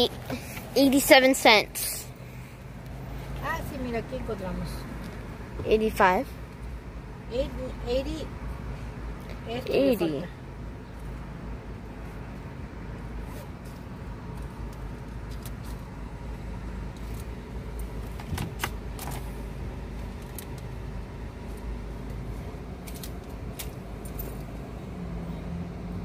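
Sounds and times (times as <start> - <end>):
low car cabin rumble: 11.8 - 26.0.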